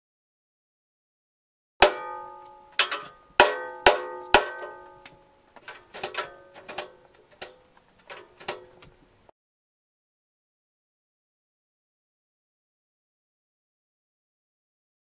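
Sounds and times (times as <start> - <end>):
steel plate clanging: 1.8 - 8.8.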